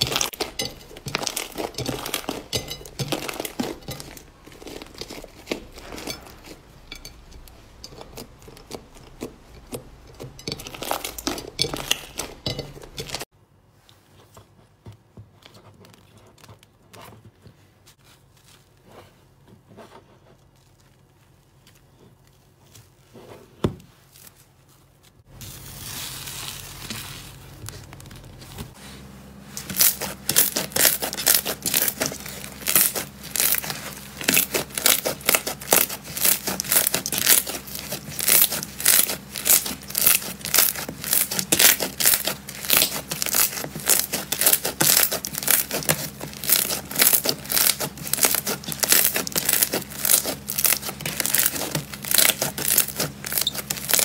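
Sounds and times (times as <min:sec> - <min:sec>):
slime crackling and tearing: 0:00.0 - 0:06.6, 0:29.6 - 0:54.0.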